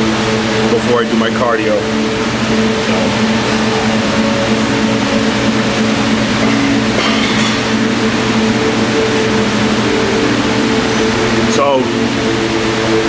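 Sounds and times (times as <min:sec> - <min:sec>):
ventilation hum: 0:00.0 - 0:13.0.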